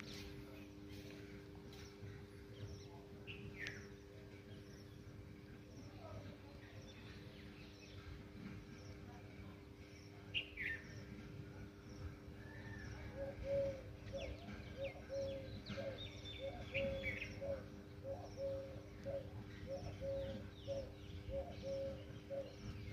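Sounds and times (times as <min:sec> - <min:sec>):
steady low hum: 0:00.0 - 0:22.9
birds chirping and whistling: 0:12.0 - 0:22.9
bird repeating low note: 0:12.6 - 0:22.9.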